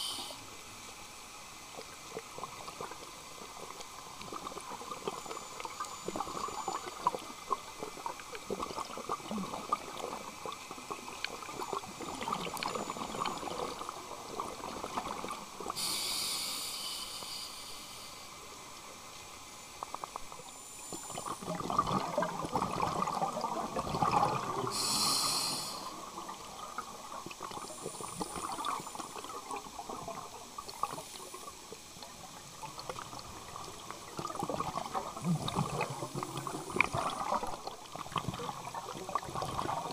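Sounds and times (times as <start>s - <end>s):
brief hisses: 0.0s - 0.4s, 15.8s - 18.1s, 24.8s - 25.9s
underwater crackle: 0.0s - 39.9s
bubbling water: 1.8s - 15.8s, 19.8s - 25.3s, 25.9s - 39.9s.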